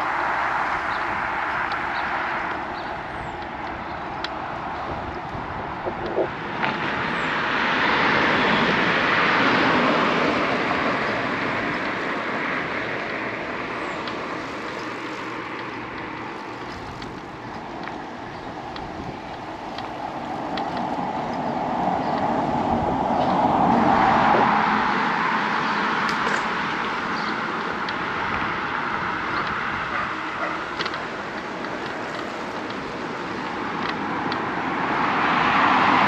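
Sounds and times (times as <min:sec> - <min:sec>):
cars passing: 0:00.0 - 0:36.0
road noise: 0:00.0 - 0:36.0.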